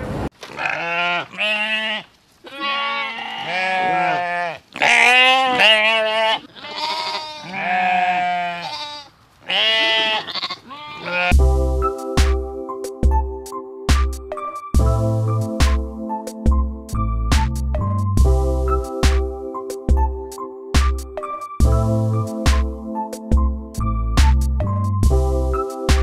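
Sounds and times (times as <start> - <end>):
sheep-like bleats: 0.5 - 11.4
music with thudding beat: 11.3 - 20.2, 20.8 - 26.0.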